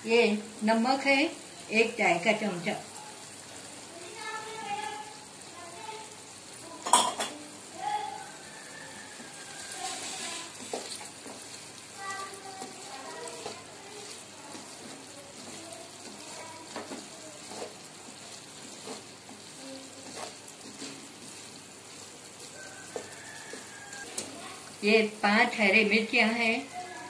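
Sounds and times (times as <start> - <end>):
meat sizzling in hot oil: 0.0 - 27.0
wooden spatula scraping a pan: 8.4 - 24.8.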